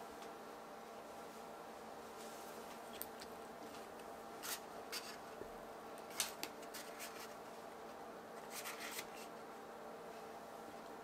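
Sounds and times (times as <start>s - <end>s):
faint steady hum: 0.0s - 11.0s
soft scrapes and rustles: 2.1s - 2.8s.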